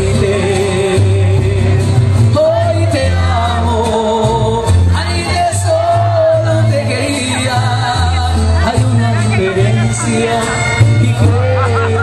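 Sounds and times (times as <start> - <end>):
mariachi band playing: 0.0 - 12.0.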